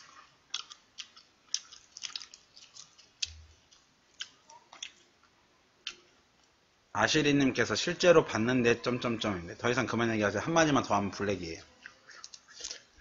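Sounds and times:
prawn shell crackling: 0.0s - 4.5s.

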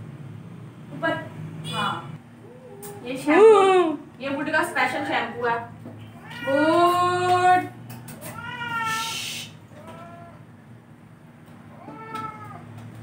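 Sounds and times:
cat meowing: 6.1s - 7.0s, 8.2s - 10.5s, 11.7s - 12.8s.

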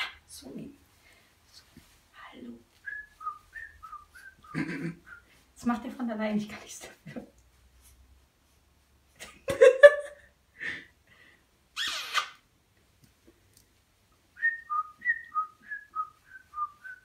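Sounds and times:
cockatoo calls: 11.8s - 12.4s
cockatoo screech: 11.8s - 12.4s.

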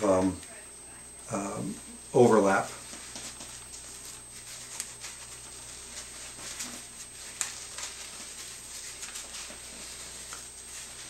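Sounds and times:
padding rustling: 2.8s - 11.0s.

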